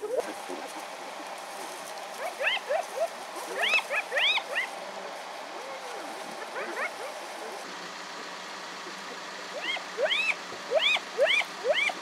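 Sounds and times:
hyenas giggling and squealing: 2.2s - 4.7s, 5.6s - 12.0s.

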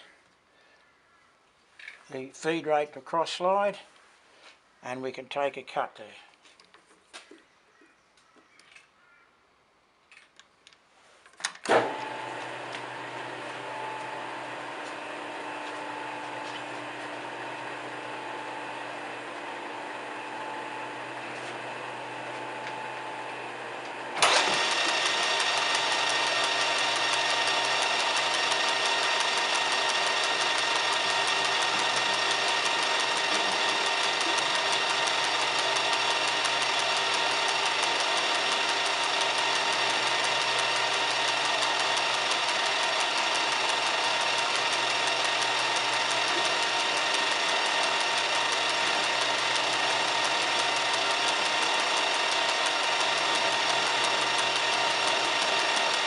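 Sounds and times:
lathe switch clunk: 11.5s - 13.0s
lathe motor whining: 11.7s - 56.0s.

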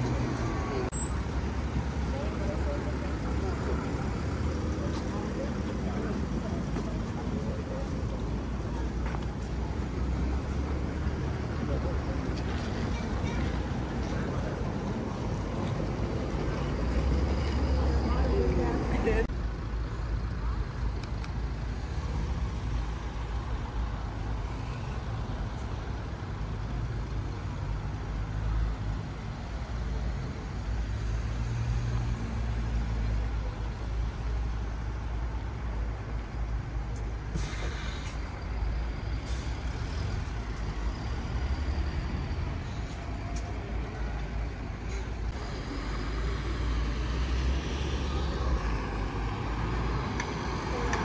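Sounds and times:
low rumble of motor vehicles: 0.0s - 51.0s
short hiss: 37.3s - 38.2s.

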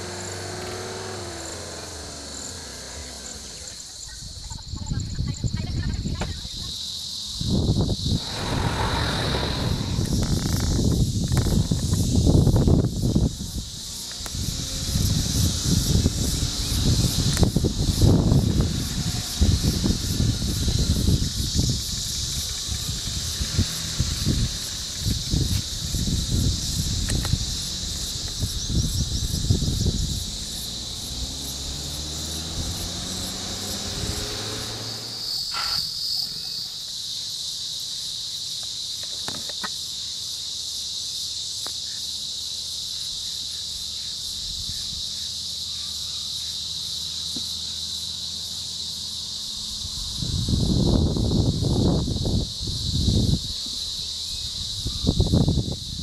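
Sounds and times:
vehicle engine rising in pitch: 0.0s - 3.9s, 8.1s - 35.8s
high-pitched insect chorus: 0.0s - 56.0s
low rumbling buffets: 7.4s - 35.5s.

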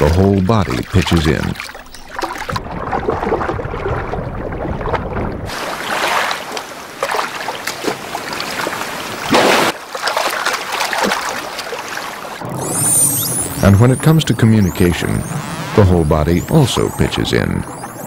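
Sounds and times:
sea water sloshing and splashing: 0.0s - 13.0s.

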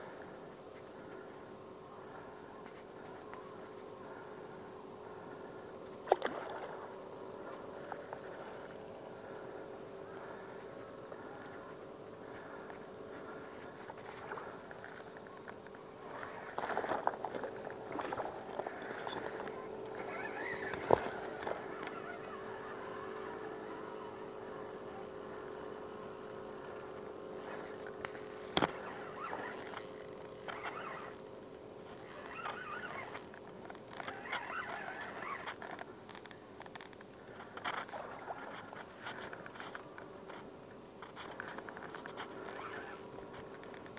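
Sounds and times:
water splashing and sloshing: 6.0s - 8.6s, 13.2s - 22.2s.

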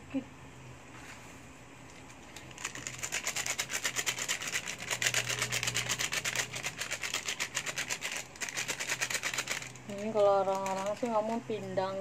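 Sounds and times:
foil sachet crinkling when shaken: 2.3s - 12.0s.

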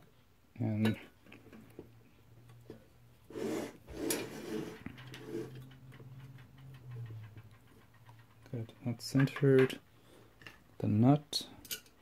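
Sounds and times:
scraping and rubbing: 3.2s - 10.6s.

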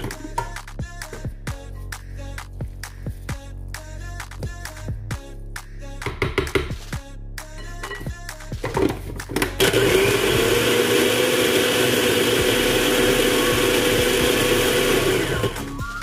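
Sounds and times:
food processor motor running: 9.6s - 15.8s.

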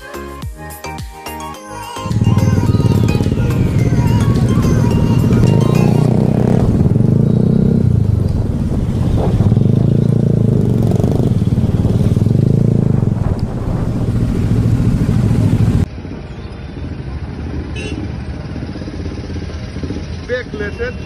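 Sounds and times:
motorcycle engine running: 2.0s - 16.1s, 16.8s - 20.4s.

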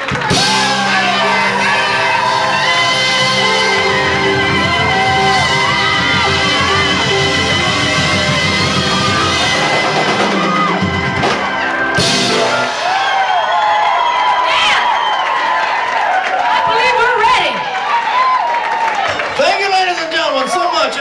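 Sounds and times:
live band playing gospel-soul song: 0.0s - 14.2s.

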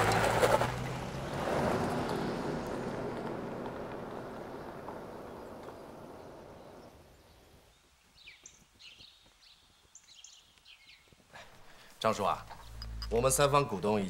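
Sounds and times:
car driving away: 0.0s - 6.9s
birds chirping: 3.7s - 14.0s.

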